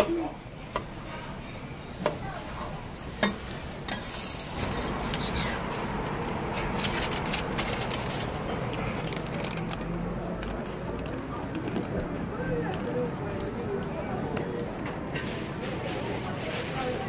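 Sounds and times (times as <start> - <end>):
paper bag crinkling: 4.1 - 12.0.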